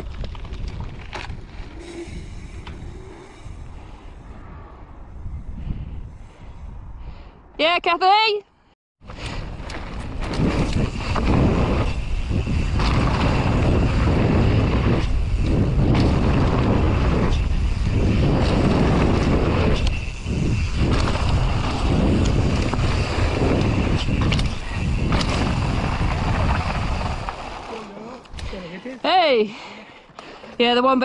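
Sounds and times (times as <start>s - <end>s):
bike clicks and rattles: 0.0s - 2.9s, 9.1s - 28.9s
wind buffeting microphone: 0.0s - 7.6s, 9.1s - 29.4s.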